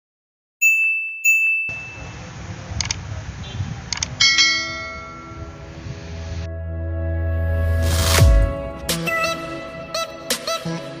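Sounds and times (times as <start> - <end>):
bell ding: 0.6 - 2.1, 4.2 - 5.5
sharp double clicks: 2.8 - 3.0, 3.9 - 4.2.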